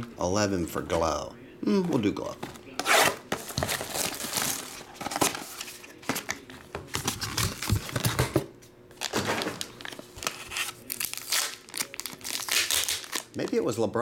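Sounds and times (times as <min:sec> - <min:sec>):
foil card pack crinkling: 0:03.4 - 0:08.2, 0:09.0 - 0:13.8.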